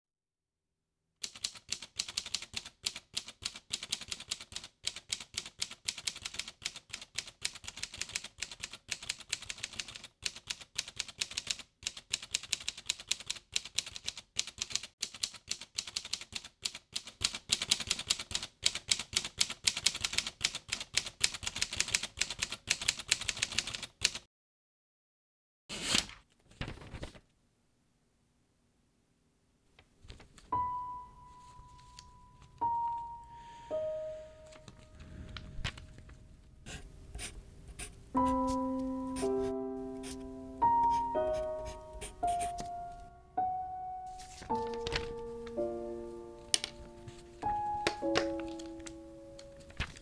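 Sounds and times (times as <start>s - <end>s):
manual typewriter typing: 1.2s - 24.2s, 44.2s - 45.2s, 47.8s - 50.0s.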